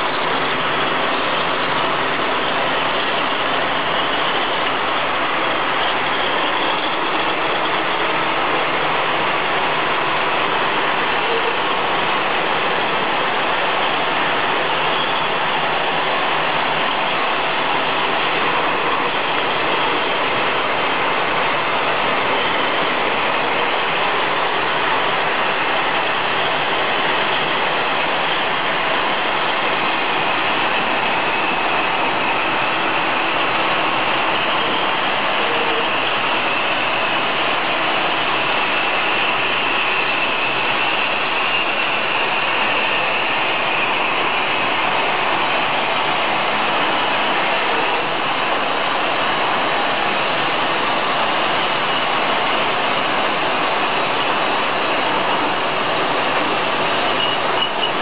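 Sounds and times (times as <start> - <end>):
bottle washing machine clatter: 55.2 - 58.0.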